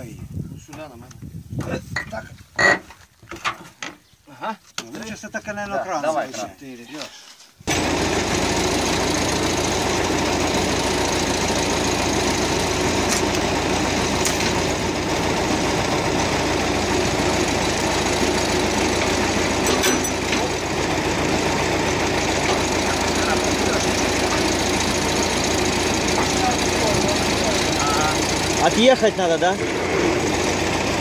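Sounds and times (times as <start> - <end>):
crane engine running: 7.7 - 31.0.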